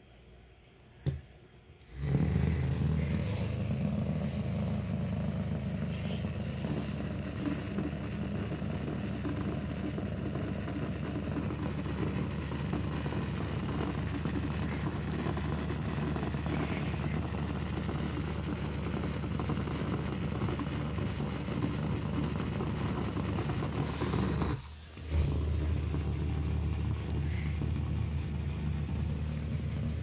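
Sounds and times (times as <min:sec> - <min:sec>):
vibrating massager motor buzz: 0:01.8 - 0:30.0
rattling against wooden floor: 0:02.0 - 0:30.0.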